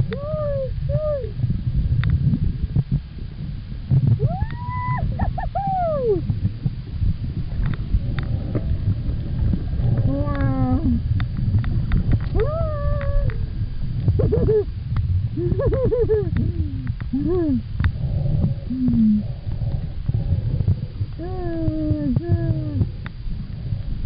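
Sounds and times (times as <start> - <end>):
low underwater rumble: 0.0 - 24.0
whale song moans: 16.3 - 24.0.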